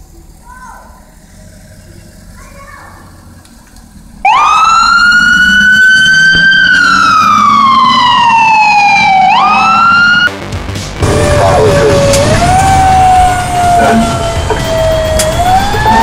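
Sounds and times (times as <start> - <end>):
ambulance siren wailing: 4.2 - 10.3, 11.0 - 16.0.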